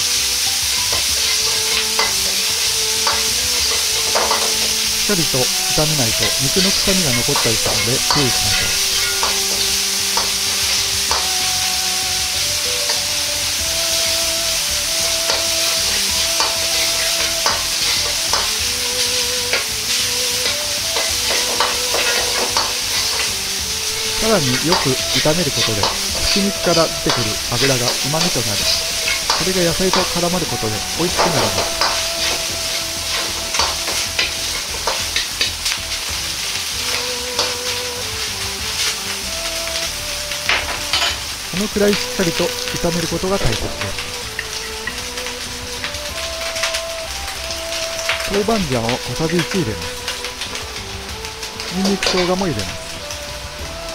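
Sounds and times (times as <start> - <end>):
metal ladle scraping a pan: 0.0 - 38.0, 39.8 - 42.8
meat sizzling in a wok: 0.0 - 53.9
ladle clinking against wok: 7.2 - 11.3.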